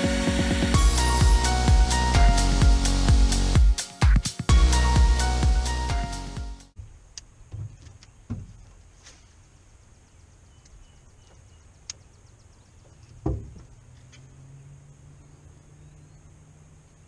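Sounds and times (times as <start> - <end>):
thump: 7.5 - 8.6, 13.2 - 13.7.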